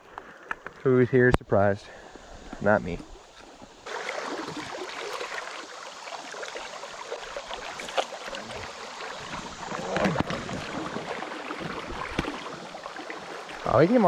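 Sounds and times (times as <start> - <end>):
river water splashing and running: 2.1 - 14.0
loud splash: 3.9 - 5.7.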